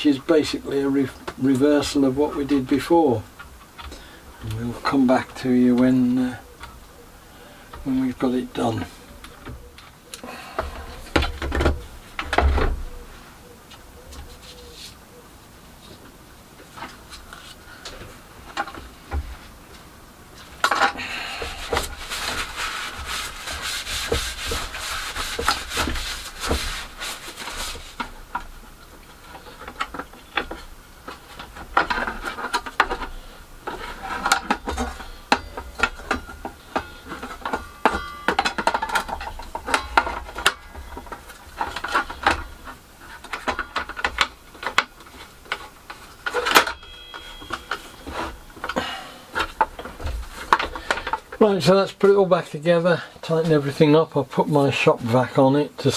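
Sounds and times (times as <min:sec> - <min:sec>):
screwdriver at work: 0:20.6 - 0:28.5.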